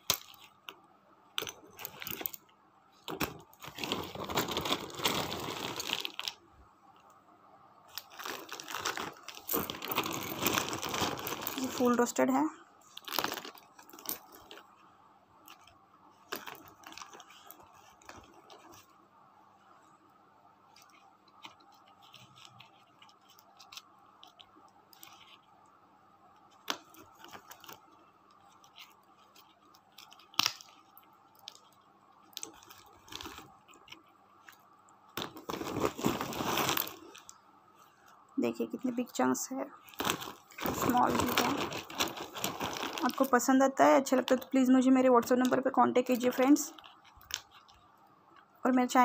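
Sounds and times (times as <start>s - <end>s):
plastic sack rustling: 3.1s - 6.3s, 8.0s - 12.2s, 35.2s - 37.3s, 39.8s - 43.5s.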